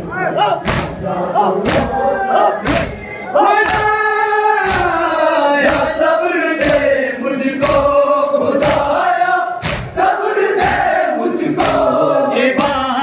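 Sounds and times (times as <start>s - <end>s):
men chanting in unison: 0.0s - 13.0s
hands slapping chests: 0.4s - 1.0s, 1.6s - 1.9s, 2.6s - 3.0s, 3.6s - 4.0s, 4.6s - 5.0s, 5.6s - 6.0s, 6.6s - 6.9s, 7.6s - 7.9s, 8.6s - 8.9s, 9.6s - 10.0s, 11.6s - 11.9s.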